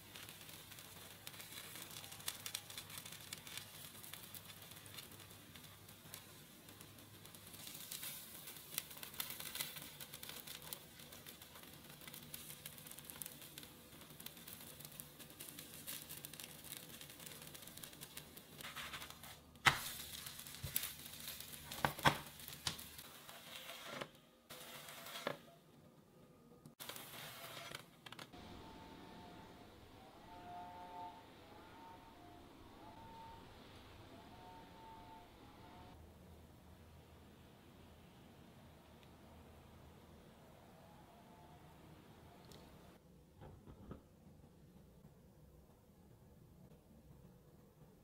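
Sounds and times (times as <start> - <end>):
pancake sizzling in oil: 0.0 - 23.9.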